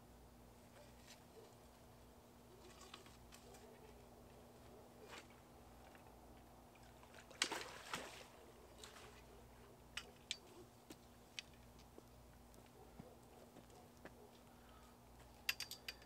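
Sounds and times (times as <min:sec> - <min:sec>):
water splashing: 0:06.8 - 0:09.3.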